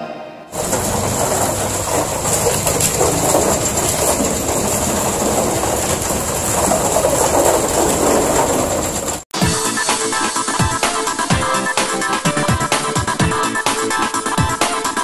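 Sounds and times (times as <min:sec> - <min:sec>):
concrete mixer truck running: 0:00.5 - 0:09.3
wet concrete sliding down chute: 0:00.5 - 0:09.3.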